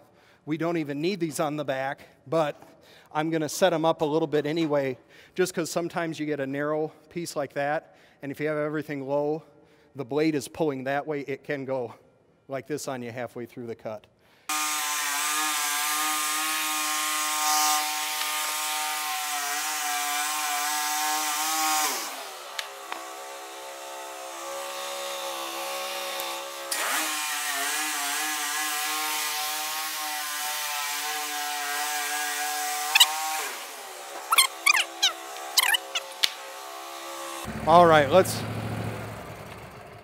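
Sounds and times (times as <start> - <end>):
band sawmill sawing log: 14.5 - 38.6.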